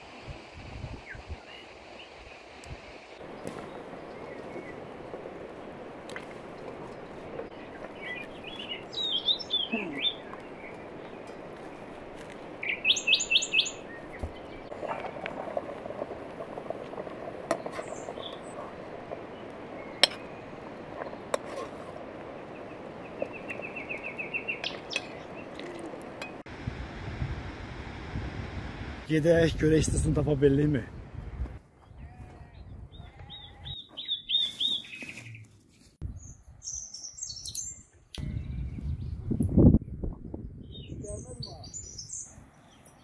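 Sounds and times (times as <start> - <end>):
small birds chirping: 3.2 - 5.2, 6.2 - 15.6, 17.5 - 26.3, 31.8 - 39.4, 40.6 - 43.0
bird trill: 7.6 - 10.8, 12.6 - 14.7.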